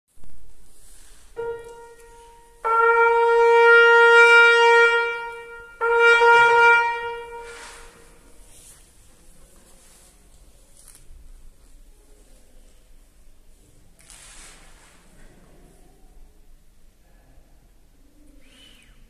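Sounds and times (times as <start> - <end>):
trumpet long held tone: 0.8 - 8.4
piano note: 1.2 - 8.2.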